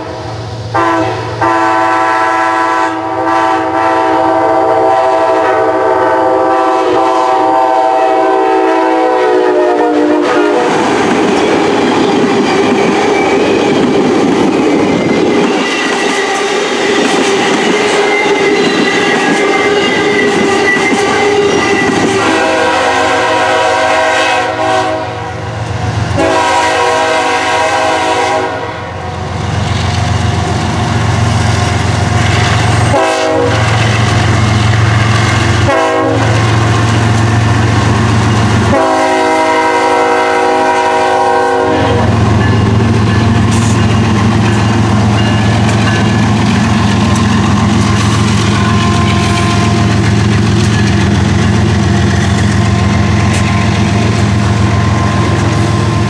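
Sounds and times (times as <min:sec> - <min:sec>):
locomotive air horn blasts: 0:00.0 - 0:10.8, 0:17.8 - 0:25.5, 0:26.1 - 0:29.0, 0:32.8 - 0:33.8, 0:35.6 - 0:36.6, 0:38.6 - 0:42.4, 0:47.4 - 0:50.0
train wheels clattering: 0:10.5 - 0:23.3, 0:29.6 - 0:41.2, 0:41.8 - 0:56.0.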